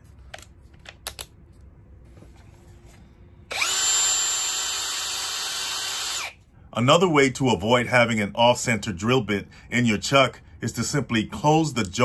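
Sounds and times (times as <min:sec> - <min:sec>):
cordless drill motor whining: 0:03.5 - 0:06.4.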